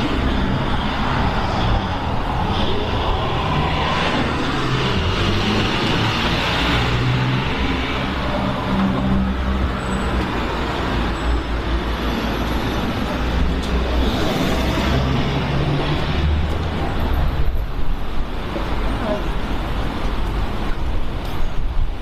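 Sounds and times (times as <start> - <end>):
vehicle engines rumbling: 0.0 - 22.0
vehicles passing: 0.0 - 22.0.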